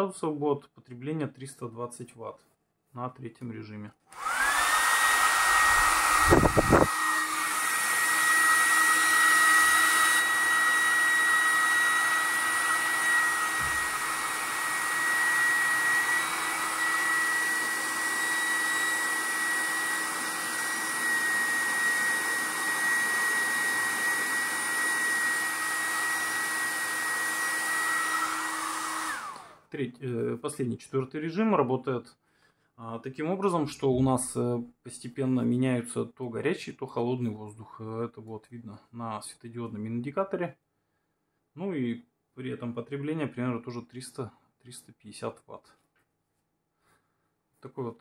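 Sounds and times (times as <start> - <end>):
hair dryer whine and air rush: 4.1 - 29.6.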